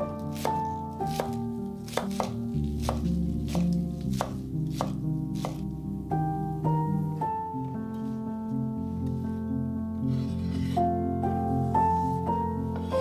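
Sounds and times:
knife chopping on wooden board: 0:00.3 - 0:05.6.

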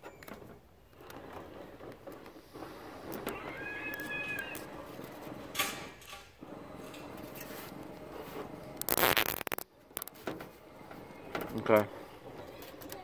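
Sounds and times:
high cat-like call: 0:03.3 - 0:04.7
zip ties rustling on a spring: 0:08.8 - 0:09.7.

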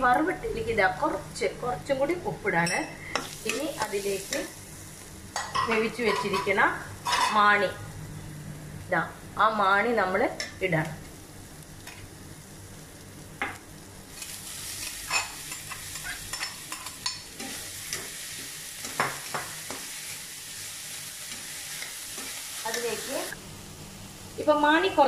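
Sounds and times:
spoon clinking and scraping wok: 0:02.6 - 0:04.5, 0:14.2 - 0:20.1
oil sizzling in wok: 0:02.6 - 0:07.8, 0:11.0 - 0:25.0.

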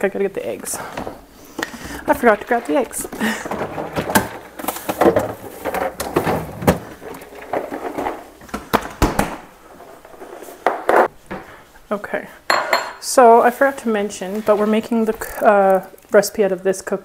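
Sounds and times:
fridge shelves knocking and rattling: 0:01.9 - 0:09.5.

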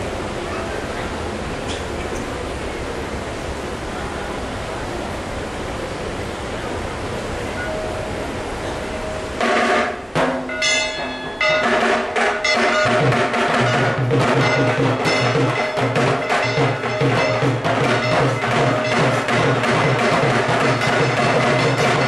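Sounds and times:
clatter of bells and gongs: 0:07.6 - 0:22.0
pulsing drum beat: 0:09.4 - 0:22.0.

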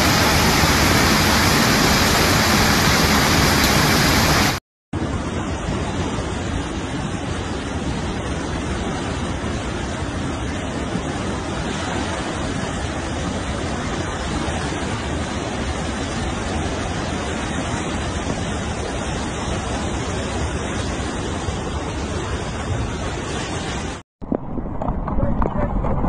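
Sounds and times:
floodwater rushing: 0:00.0 - 0:26.0.

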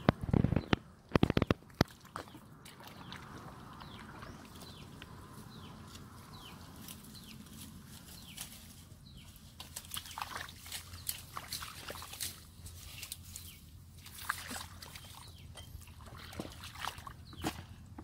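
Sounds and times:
mud squelching underfoot: 0:00.0 - 0:18.0
shallow water sloshing: 0:14.0 - 0:17.8.

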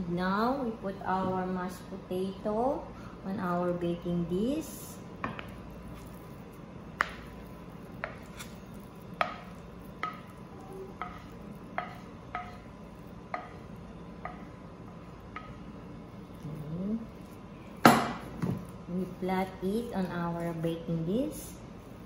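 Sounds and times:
spatula knocking on glass dish: 0:09.2 - 0:10.3, 0:11.0 - 0:12.7, 0:13.3 - 0:13.6, 0:14.2 - 0:14.5.

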